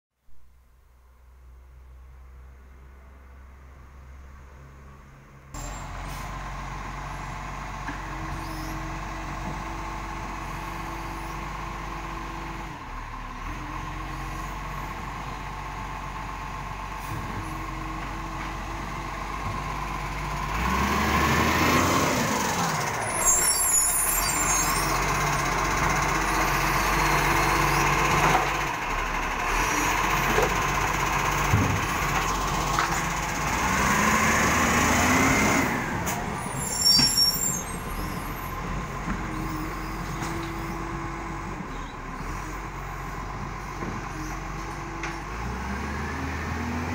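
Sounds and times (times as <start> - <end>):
garbage truck diesel engine: 1.0 - 46.9.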